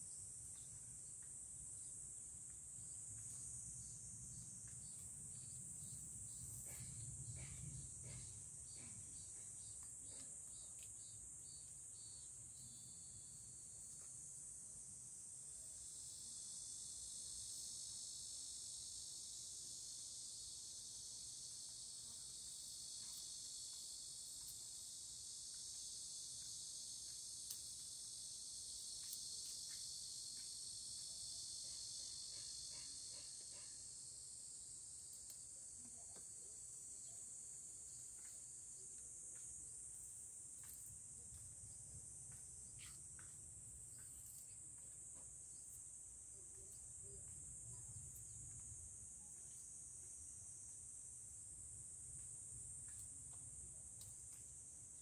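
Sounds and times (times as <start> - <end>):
high-pitched insect chorus: 0.0 - 55.0
faint small ticks: 0.4 - 3.7, 4.4 - 12.7, 21.5 - 33.9, 35.0 - 50.2, 52.0 - 54.7.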